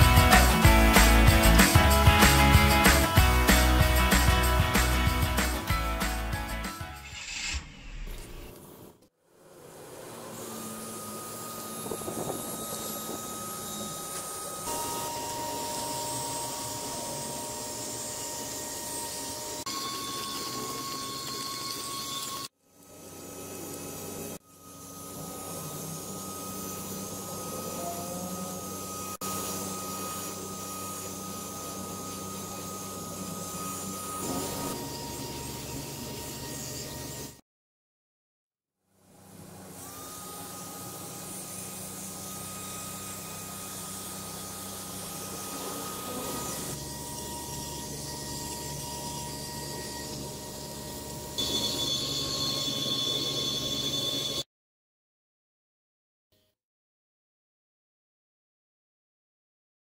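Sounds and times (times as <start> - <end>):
handheld vacuum cleaner running: 9.7 - 37.4, 39.1 - 54.4.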